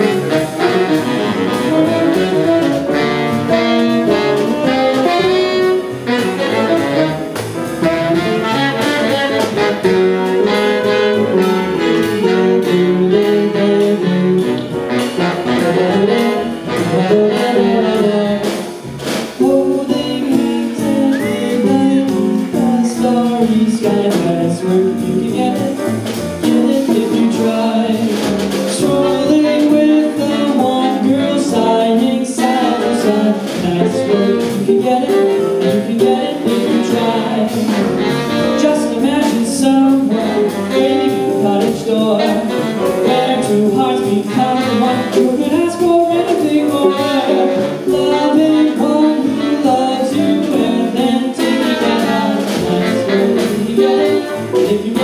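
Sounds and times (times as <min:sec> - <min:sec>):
saxophones: 0:00.0 - 0:18.5
drums: 0:00.0 - 0:55.0
piano: 0:00.0 - 0:55.0
upright bass: 0:00.0 - 0:55.0
guitar: 0:19.4 - 0:22.8.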